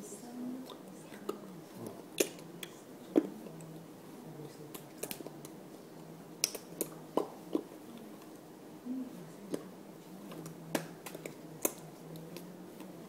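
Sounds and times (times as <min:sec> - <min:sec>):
faint low hum: 0:00.0 - 0:13.0
hands clicking and smacking: 0:06.4 - 0:07.7, 0:10.3 - 0:12.9.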